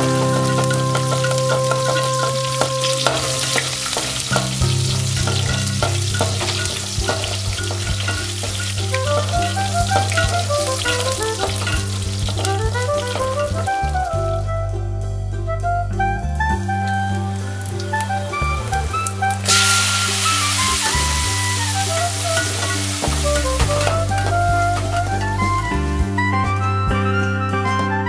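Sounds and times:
metal ladle scraping pan: 0.0s - 13.6s, 17.4s - 25.4s
food sizzling in hot oil: 0.0s - 13.7s, 19.0s - 25.2s
instrumental background music: 0.0s - 28.0s.

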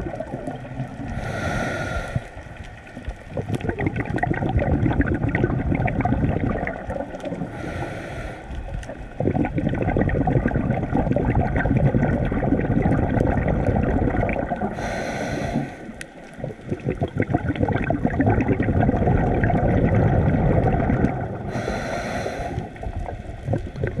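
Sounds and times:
exhaled air bubbling: 0.0s - 24.0s
regulator inhale hiss: 1.1s - 2.6s, 7.5s - 9.0s, 14.7s - 16.2s, 21.4s - 23.0s.

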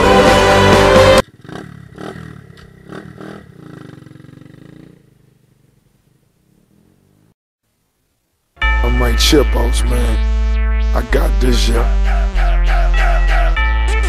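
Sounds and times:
dirt bike engine revving: 0.0s - 5.8s.

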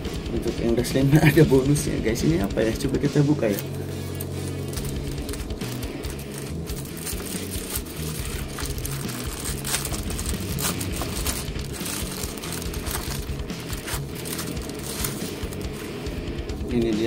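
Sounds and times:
background music: 0.0s - 17.0s
plastic bag crinkling: 3.5s - 16.1s.

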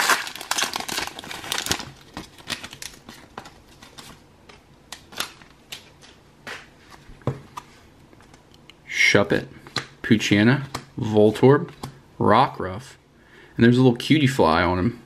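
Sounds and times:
foil wrapper crinkling: 0.0s - 4.2s.

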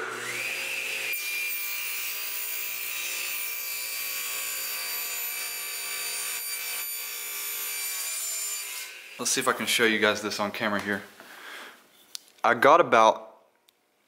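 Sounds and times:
table saw cutting wood: 0.0s - 10.0s.

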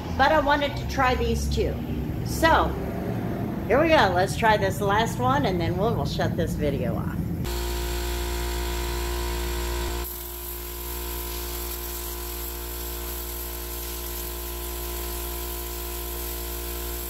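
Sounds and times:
air compressor drone: 7.2s - 17.0s
compressed air hissing: 10.0s - 17.0s.

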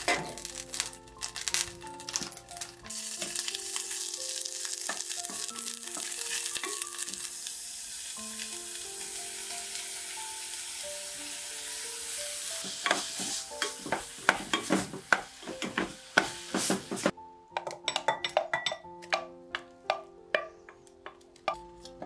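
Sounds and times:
garlic sizzling in butter: 0.0s - 17.2s
background music of held notes: 0.0s - 22.0s
spoon knocking pot: 13.6s - 22.0s.

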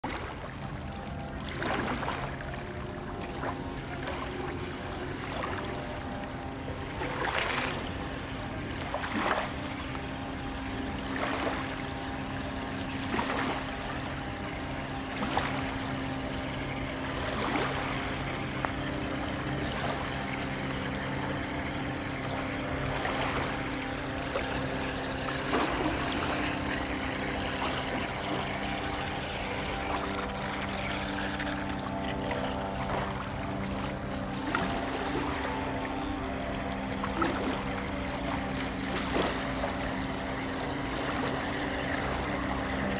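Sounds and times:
electric motors humming: 0.0s - 42.9s.

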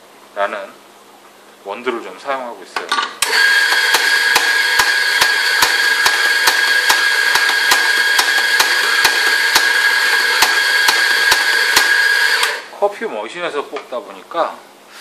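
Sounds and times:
coffee grinder motor whirring: 3.2s - 12.7s.

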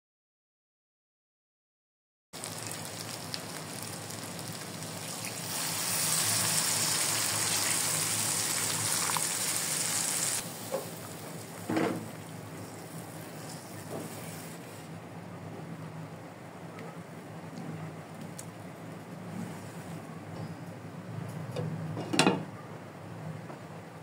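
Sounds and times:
water poured into hot pan: 2.4s - 10.4s
curry sizzling in a frying pan: 2.4s - 14.9s.

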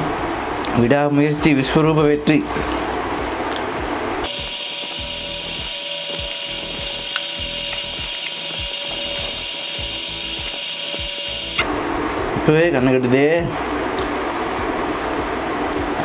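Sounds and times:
whirring fast-forward hiss: 4.2s - 11.7s.

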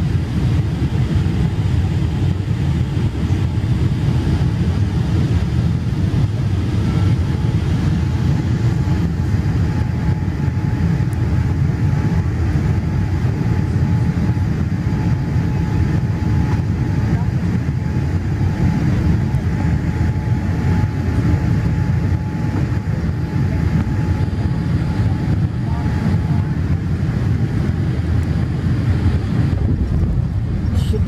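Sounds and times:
low rumble of aircraft engines: 0.0s - 31.0s.

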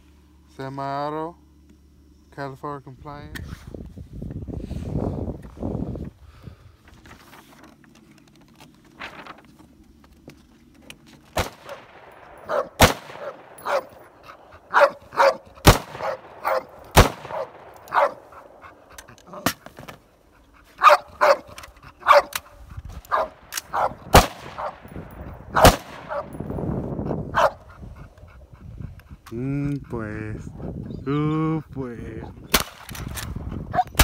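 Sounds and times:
rifle shots: 11.3s - 18.6s, 23.1s - 26.6s, 32.5s - 33.3s
dog barking: 12.4s - 19.5s, 20.6s - 22.4s, 23.1s - 26.4s, 27.3s - 27.8s, 33.7s - 34.0s.

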